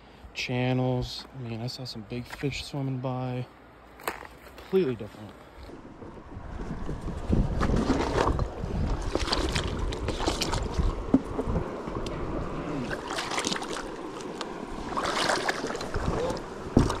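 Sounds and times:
water splashing and sloshing: 0:03.9 - 0:17.0
wind rumbling on microphone: 0:05.4 - 0:17.0.

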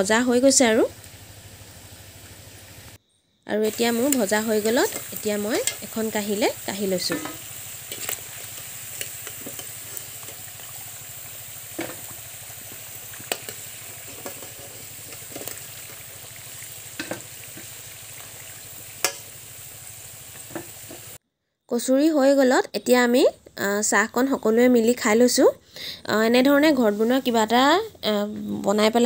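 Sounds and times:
deep-frying sizzle in hot oil: 0:00.0 - 0:21.2
metal spoon clicking against pan: 0:04.9 - 0:05.8, 0:19.0 - 0:19.2.

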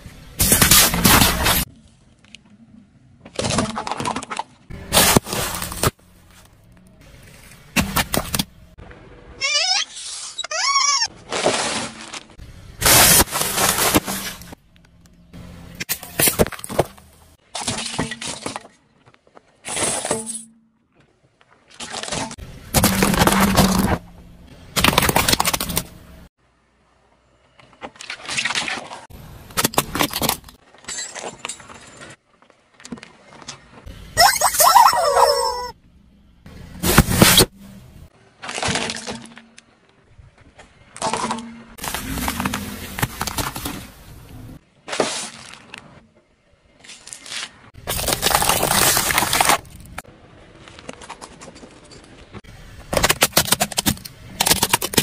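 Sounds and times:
tyre crushing plastic objects: 0:00.4 - 0:01.7, 0:03.2 - 0:06.5, 0:11.2 - 0:14.6, 0:15.8 - 0:20.5, 0:21.7 - 0:24.0, 0:24.7 - 0:26.0, 0:36.8 - 0:37.5, 0:38.4 - 0:39.8, 0:40.9 - 0:44.2, 0:46.8 - 0:55.0
rubber squeaky toys squealing: 0:09.4 - 0:11.2, 0:34.2 - 0:35.8
plastic toy cracking: 0:52.9 - 0:55.0.

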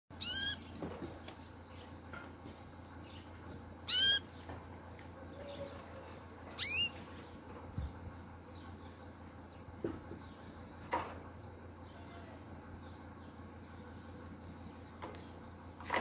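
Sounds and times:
canary rising call notes: 0:00.2 - 0:00.6, 0:03.8 - 0:04.3, 0:06.6 - 0:07.0.

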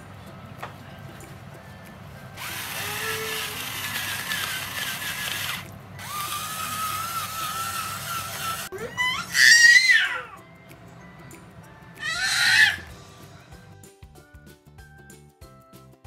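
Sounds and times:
kitchen appliance motor whining: 0:02.4 - 0:10.3.

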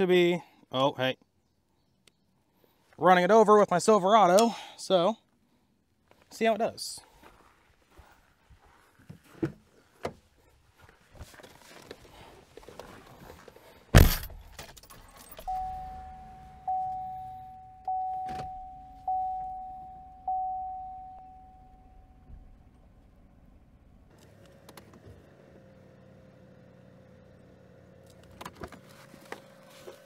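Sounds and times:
truck door slamming: 0:13.9 - 0:14.6
car warning chime dinging: 0:15.3 - 0:22.4.

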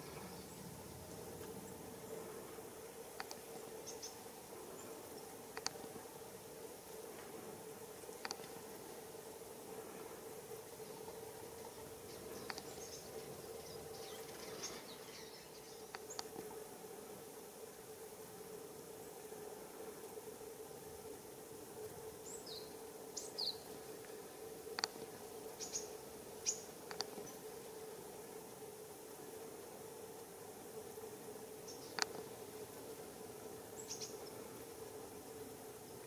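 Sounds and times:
faint steady hum: 0:00.0 - 0:36.0
sharp high bird ticks: 0:03.2 - 0:04.2, 0:05.5 - 0:05.9, 0:08.1 - 0:08.6, 0:12.4 - 0:13.0, 0:15.8 - 0:16.4, 0:24.7 - 0:25.0, 0:25.6 - 0:27.4, 0:31.7 - 0:32.2
thin high bird calls: 0:03.2 - 0:04.2, 0:25.6 - 0:27.4, 0:33.8 - 0:34.3.

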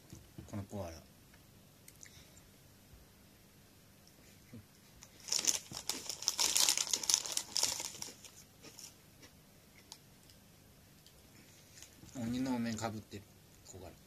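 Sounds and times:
foil bag crinkling: 0:05.1 - 0:08.9.

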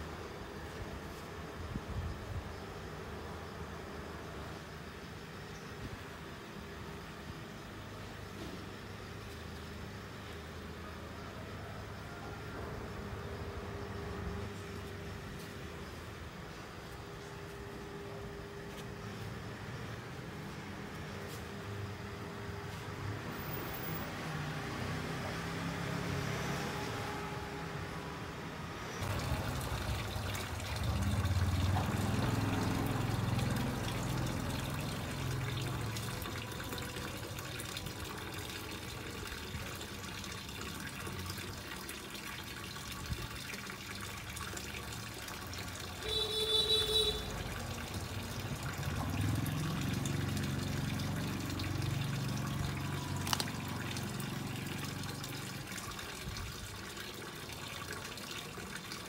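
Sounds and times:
water splashing into pond: 0:29.0 - 0:59.0.

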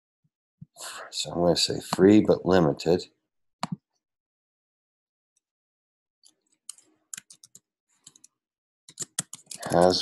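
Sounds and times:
keyboard typing: 0:06.6 - 0:08.3, 0:08.9 - 0:10.0.

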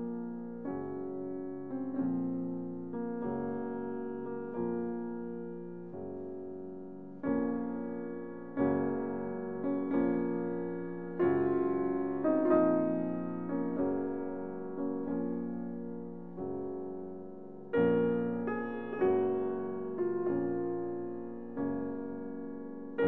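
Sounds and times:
slow piano chords: 0:00.0 - 0:23.0.

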